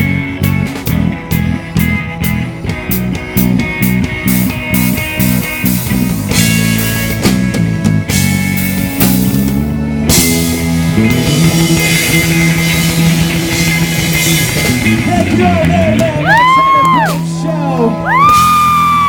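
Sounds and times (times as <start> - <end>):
live rock band playing: 0.0 - 19.0
voices whooping: 16.2 - 19.0.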